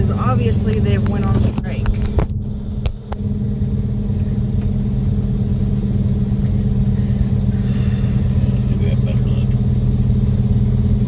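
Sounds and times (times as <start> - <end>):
diesel engine low drone: 0.0 - 11.0.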